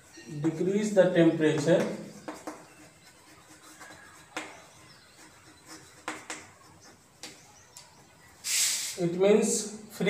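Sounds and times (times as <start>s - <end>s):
chalk scratching on chalkboard: 0.0s - 7.5s
chalk taps: 0.0s - 8.1s.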